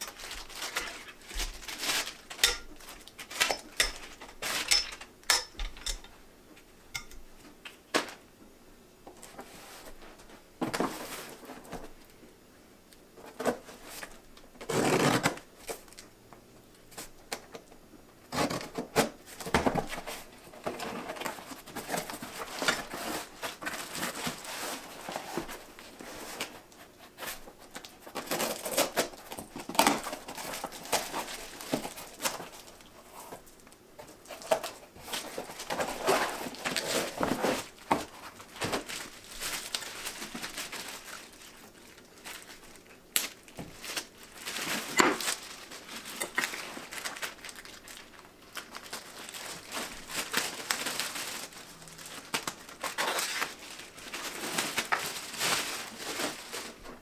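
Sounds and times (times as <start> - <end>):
plastic crinkling: 0.0 - 5.9, 18.3 - 57.0
cardboard scraping: 34.4 - 40.6.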